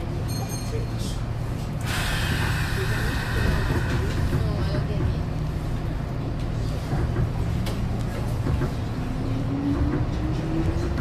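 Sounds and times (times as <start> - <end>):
train running rumble: 0.0 - 11.0.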